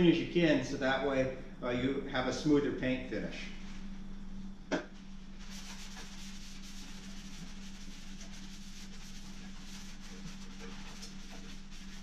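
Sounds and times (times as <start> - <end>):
steady low hum: 0.0 - 12.0
cloth rag rubbing on wood: 5.4 - 12.0.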